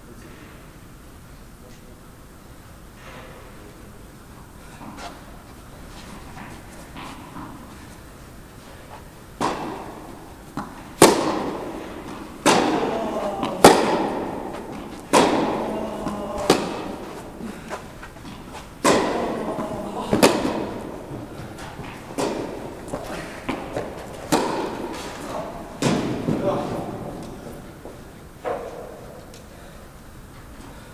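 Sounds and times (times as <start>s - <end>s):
tennis ball struck by rackets: 9.4s - 27.4s.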